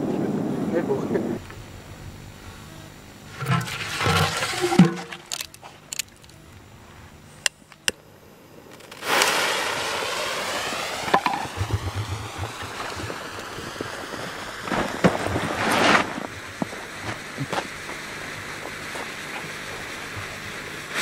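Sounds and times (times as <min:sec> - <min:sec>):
firework fuse hissing and sputtering: 0:08.5 - 0:21.0.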